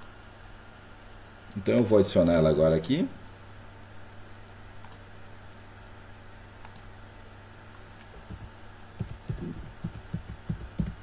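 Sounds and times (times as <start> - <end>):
steady low hum: 0.0 - 11.0
computer keyboard typing: 8.1 - 11.0.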